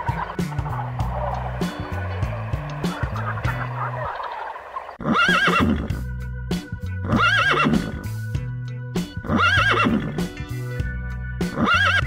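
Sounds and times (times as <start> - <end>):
background music with bass line: 0.0 - 4.2, 5.0 - 12.0
horse whinnying: 5.0 - 6.0, 7.0 - 8.0, 9.2 - 10.2, 11.5 - 12.0.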